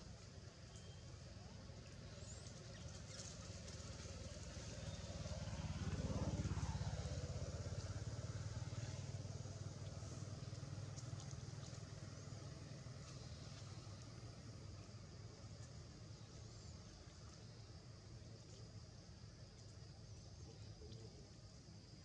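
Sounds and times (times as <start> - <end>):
vehicle engine passing by: 2.2 - 15.1.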